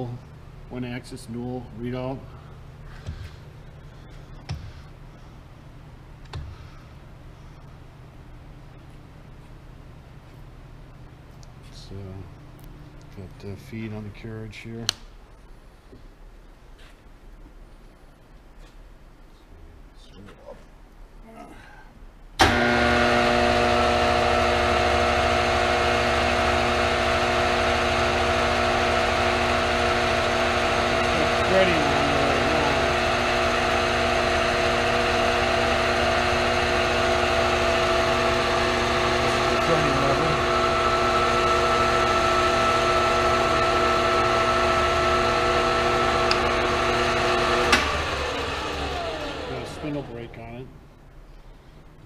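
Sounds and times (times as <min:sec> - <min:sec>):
lathe whining: 0:22.4 - 0:50.3.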